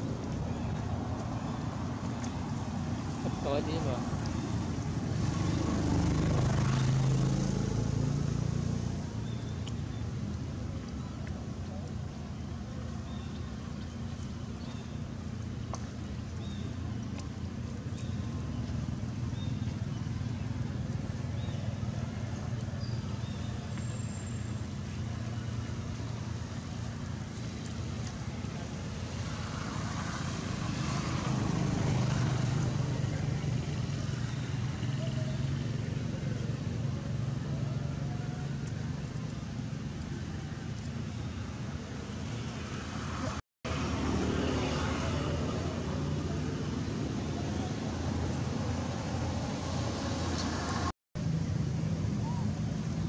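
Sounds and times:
low rumble of traffic: 0:00.0 - 0:53.0.

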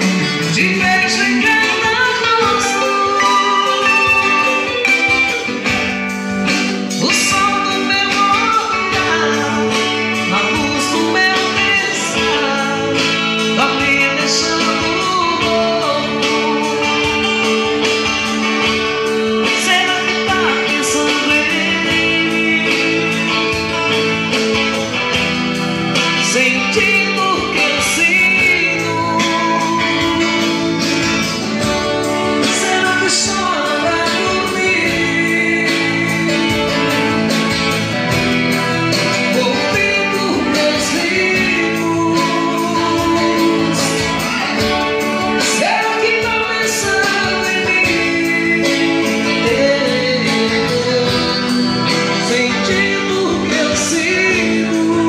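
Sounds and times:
acoustic guitar strumming: 0:00.0 - 0:55.0
electric guitar: 0:00.0 - 0:55.0
man singing: 0:00.0 - 0:55.0.

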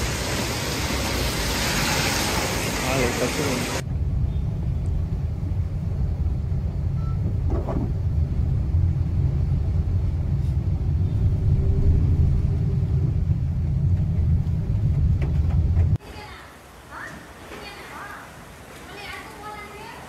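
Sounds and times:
vehicle rumble from inside cabin: 0:03.9 - 0:16.0.

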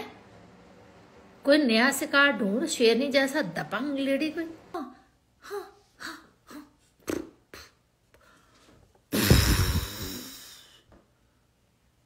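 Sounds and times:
woman blowing into microphone: 0:09.1 - 0:10.6
short vocal sounds: 0:09.1 - 0:10.7.

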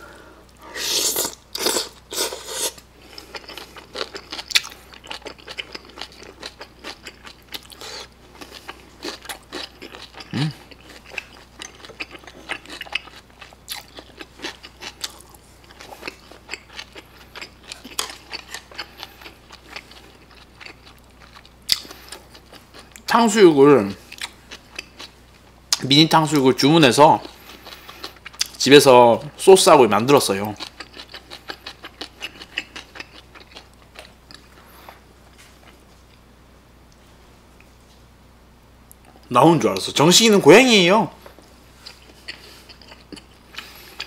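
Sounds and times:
wet crunchy chewing: 0:00.9 - 0:23.1, 0:30.3 - 0:35.8, 0:41.8 - 0:44.0.

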